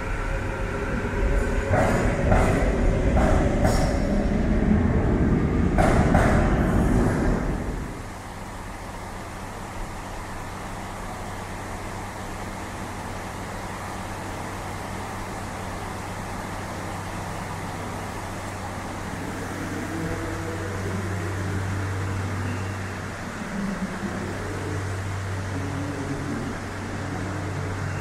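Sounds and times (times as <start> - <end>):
sharp rail noises: 0.0 - 4.6
train wheels rumbling on rails: 0.0 - 28.0.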